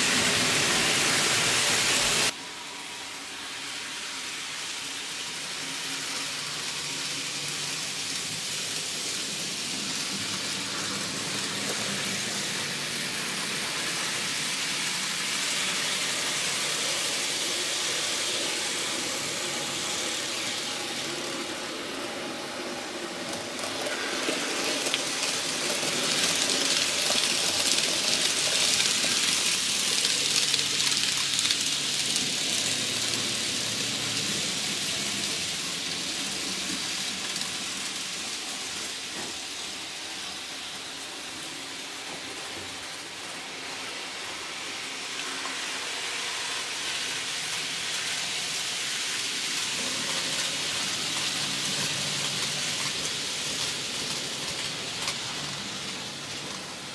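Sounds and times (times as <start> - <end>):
model trains whirring on track: 0.0 - 56.9.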